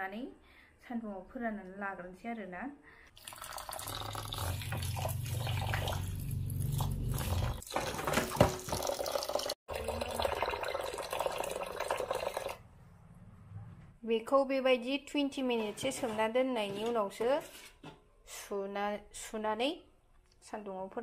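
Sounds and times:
water pouring into a metal pan: 3.2s - 12.6s.

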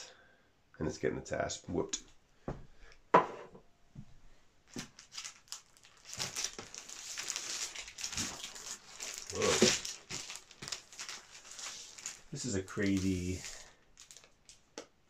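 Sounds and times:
paper sheets rustling and crinkling: 4.7s - 14.3s.

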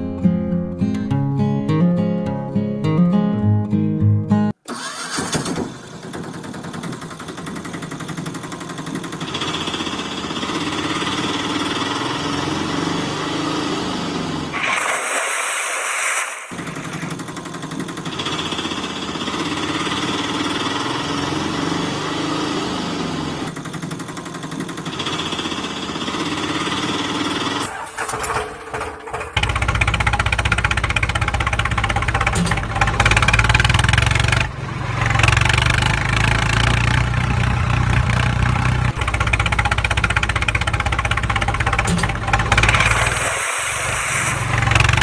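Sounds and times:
small engine revving: 4.7s - 15.1s, 16.4s - 28.4s, 41.9s - 45.0s
short hiss: 14.6s - 17.1s.

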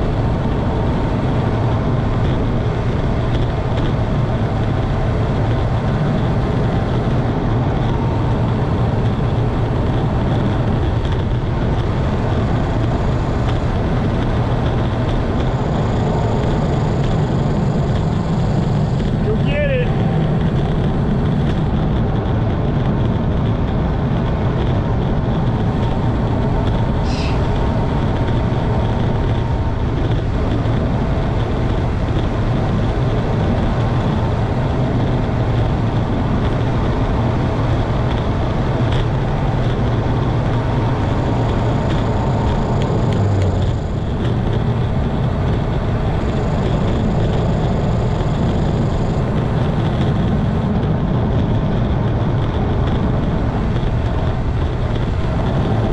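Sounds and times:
wind buffeting microphone: 0.0s - 55.9s
high squeak: 27.1s - 27.4s.

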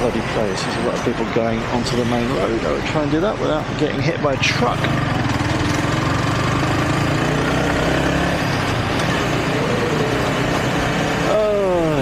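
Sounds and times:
wind and road noise: 0.0s - 12.0s
motorcycle engine running: 4.4s - 12.0s.

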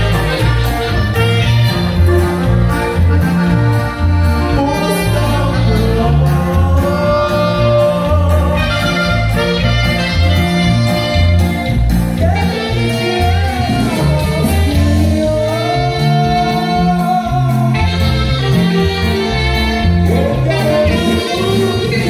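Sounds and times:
bass line stepping between notes: 0.0s - 22.0s
sustained instrument chords: 0.0s - 22.0s
person singing: 4.4s - 22.0s.

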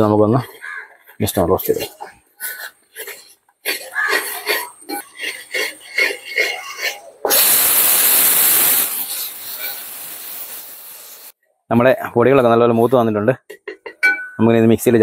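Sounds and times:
pressure cooker steam hiss: 7.3s - 11.4s.

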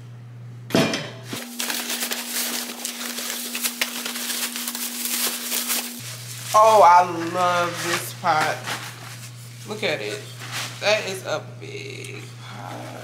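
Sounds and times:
bubble wrap and cardboard crinkling: 1.3s - 11.2s.

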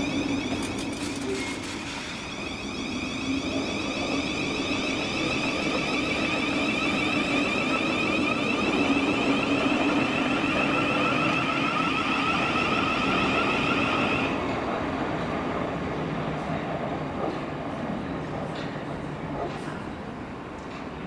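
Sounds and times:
electric train motor whine: 0.0s - 14.4s
train wheels on rail: 0.0s - 21.0s.

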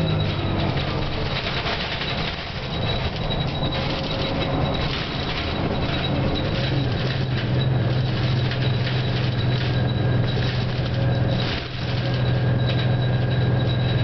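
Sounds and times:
bus diesel engine drone: 0.0s - 14.0s.

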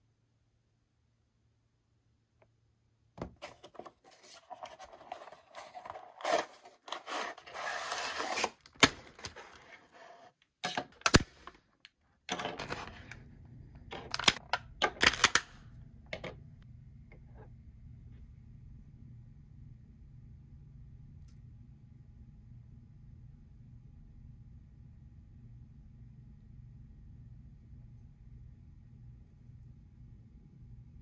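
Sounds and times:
packaging rustling and tearing: 3.4s - 9.9s.

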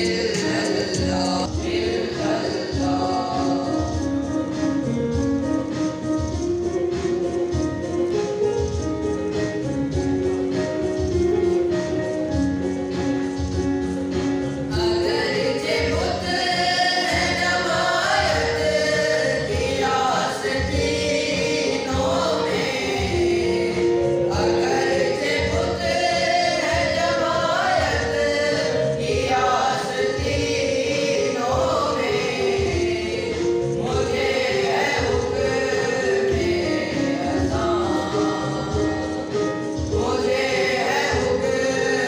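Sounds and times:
young men singing together: 0.0s - 4.0s, 14.8s - 42.0s
electronic keyboard melody over beat: 0.0s - 42.0s.

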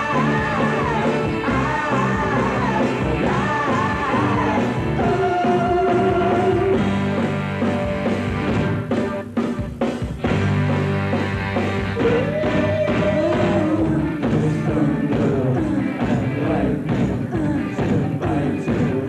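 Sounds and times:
woman singing lead: 0.0s - 6.9s, 12.0s - 19.0s
live rock band playing: 0.0s - 19.0s.

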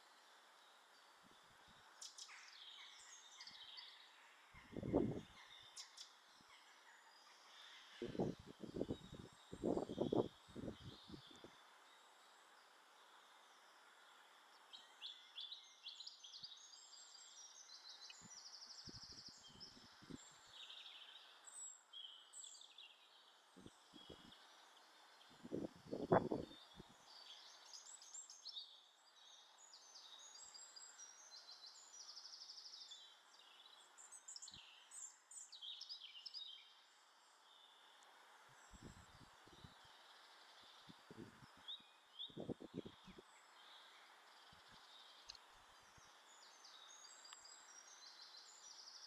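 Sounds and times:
birds chirping and trilling: 2.0s - 11.4s.

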